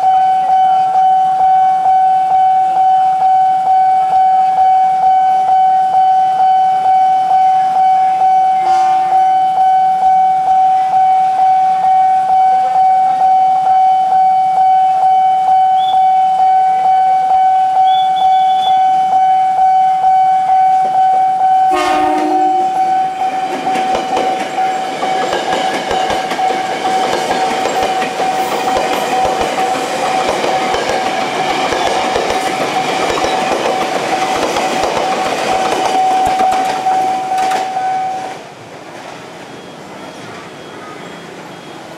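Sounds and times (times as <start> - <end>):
level crossing alarm: 0.0 - 38.4
train horn blast: 7.2 - 13.2, 15.8 - 24.8
train wheel clatter: 21.8 - 39.2.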